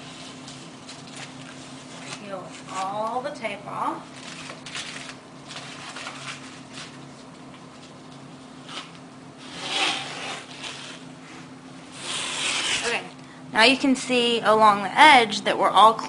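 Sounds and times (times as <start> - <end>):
tape crinkling in hands: 4.1 - 9.1
tape tearing off: 8.6 - 11.0, 11.9 - 13.1.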